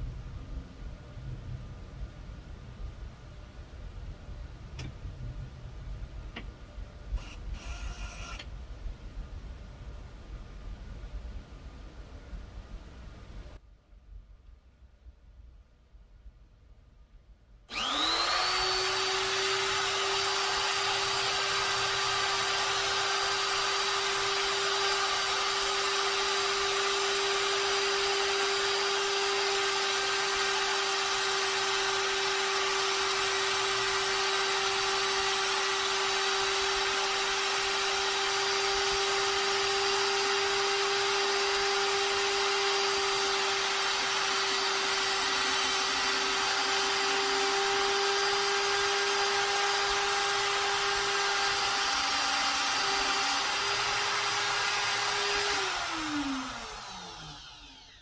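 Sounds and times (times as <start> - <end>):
die grinder whining: 7.2 - 8.5, 17.7 - 58.0.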